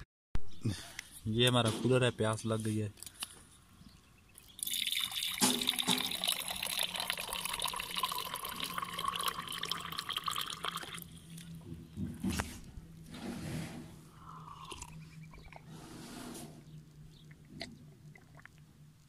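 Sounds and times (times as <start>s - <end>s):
water pouring into steel tumbler: 4.5s - 11.2s.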